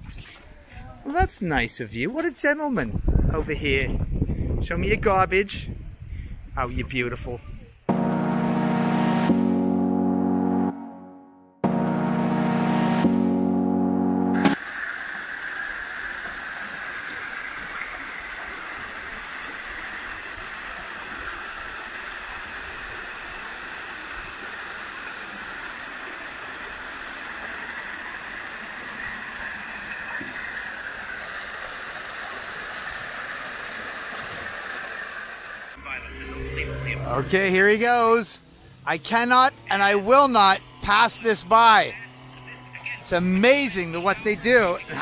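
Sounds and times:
small waterfall splashing into pool: 0:14.6 - 0:35.8.

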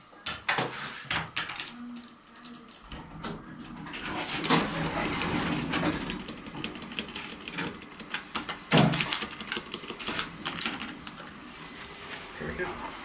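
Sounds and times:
elevator doors rattling and clicking: 0:03.7 - 0:07.7.

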